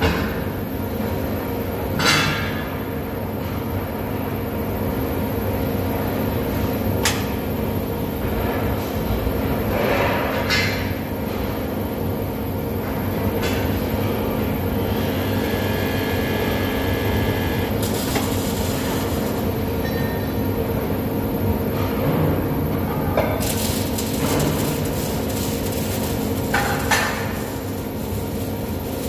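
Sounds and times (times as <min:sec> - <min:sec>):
factory machinery drone: 0:00.0 - 0:29.0
higher machine whine: 0:14.8 - 0:29.0.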